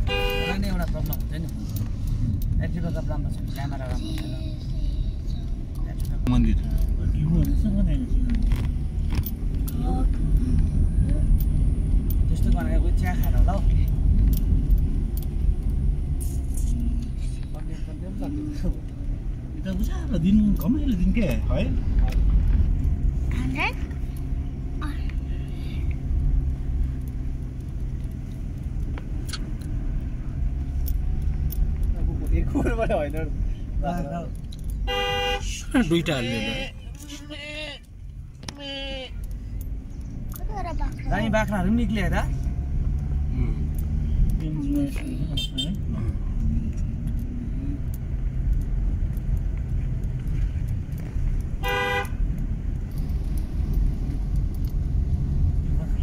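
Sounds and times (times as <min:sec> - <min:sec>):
car horn toot: 0:00.0 - 0:00.9, 0:34.8 - 0:36.8, 0:45.3 - 0:45.8, 0:51.6 - 0:52.3
car engine and tyres rumbling: 0:00.0 - 0:56.0.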